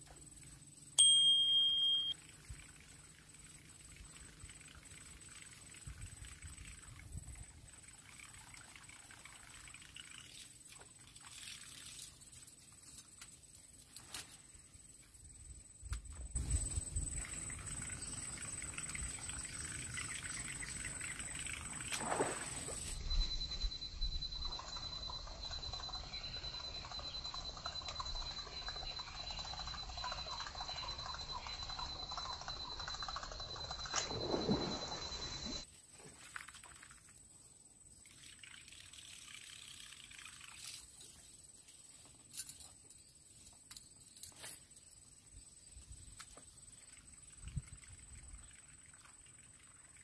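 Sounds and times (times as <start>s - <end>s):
fishing reel ticking: 38.1s - 40.9s.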